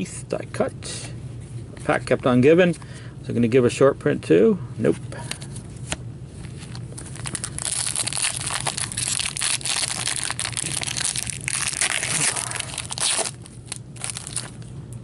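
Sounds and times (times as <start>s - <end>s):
foil wrapper tearing and crinkling: 6.7s - 14.6s.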